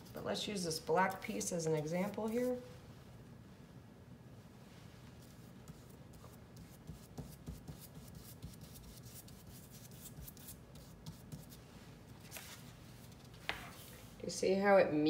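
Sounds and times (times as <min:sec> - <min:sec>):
paintbrush bristle strokes on paper: 0:05.2 - 0:14.2.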